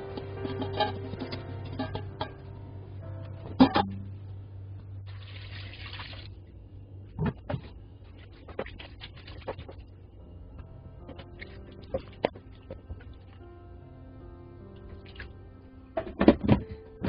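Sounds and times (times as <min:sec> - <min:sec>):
liquid pouring and splashing: 0:05.1 - 0:06.4, 0:08.2 - 0:09.8.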